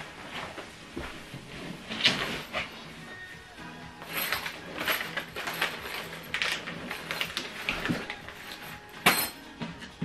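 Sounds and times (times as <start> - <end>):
plastic bag rustling: 0.0 - 2.9, 4.0 - 9.3
metal fittings clinking: 4.0 - 9.4.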